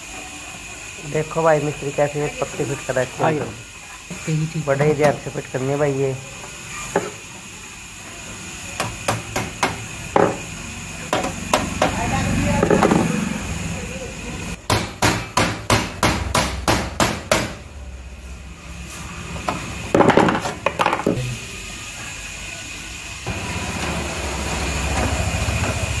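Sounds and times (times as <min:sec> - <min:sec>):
sharp metallic knocks on sheet metal: 0:08.8 - 0:10.4, 0:11.1 - 0:12.0, 0:14.6 - 0:17.6.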